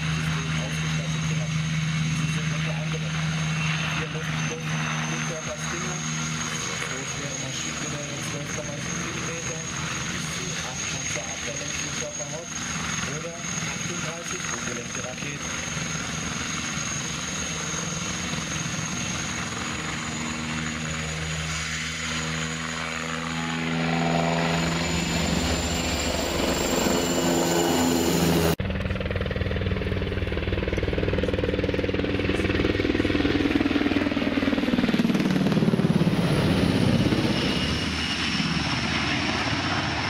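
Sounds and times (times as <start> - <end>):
heavy engine with high whine: 0.0 - 12.4.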